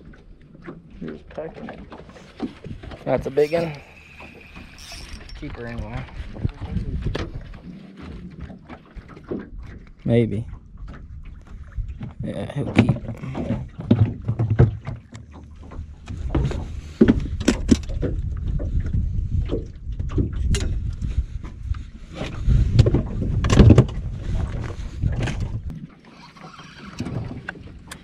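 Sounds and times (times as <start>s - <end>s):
low wind rumble: 1.7s - 25.8s
knocks and thumps in cooler: 12.6s - 15.0s, 22.9s - 24.0s.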